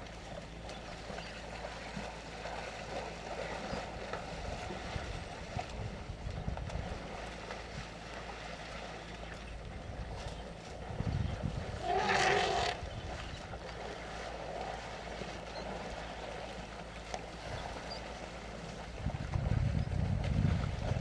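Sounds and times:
low rumble: 0:00.0 - 0:21.0
loud animal call: 0:11.8 - 0:12.8.

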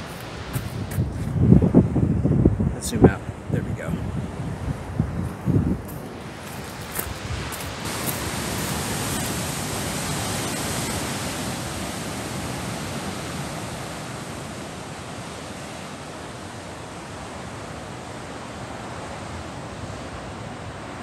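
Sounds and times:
surf breaking against rocks: 0:06.3 - 0:14.5.

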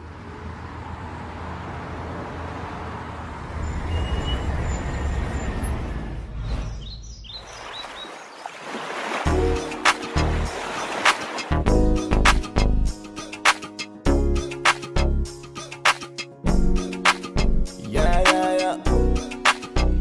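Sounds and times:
bird chirping: 0:06.4 - 0:08.5.

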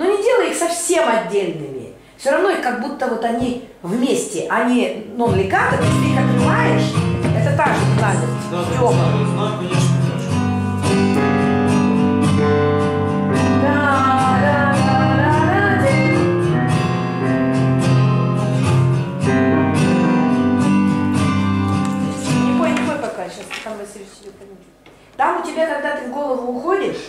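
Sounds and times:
acoustic guitar backing track: 0:05.1 - 0:26.2.

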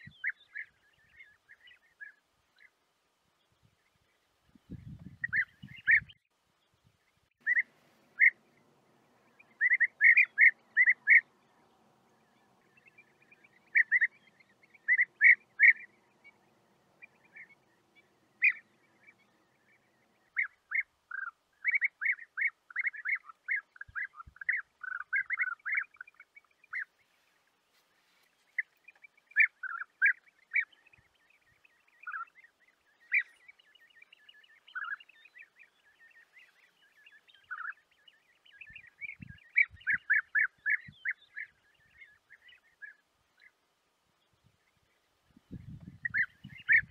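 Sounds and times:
birds rolling calls: 0:07.4 - 0:27.0, 0:45.7 - 0:46.9.

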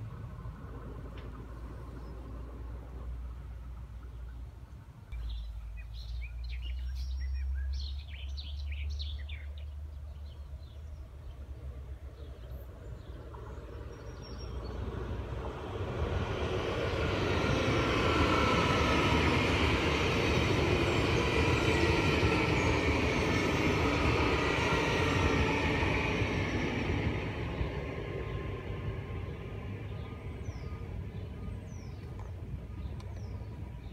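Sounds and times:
train rolling past: 0:00.0 - 0:33.9
birds chirping: 0:26.0 - 0:33.9.

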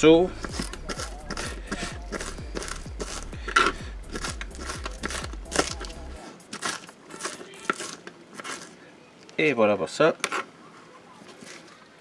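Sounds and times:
knife chopping on plastic board: 0:00.4 - 0:06.0.

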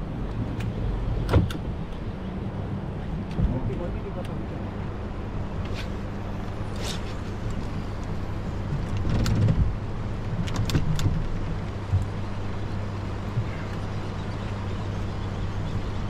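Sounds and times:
boat motor humming: 0:00.0 - 0:16.0
water: 0:00.0 - 0:16.0
wind noise: 0:04.9 - 0:13.7.

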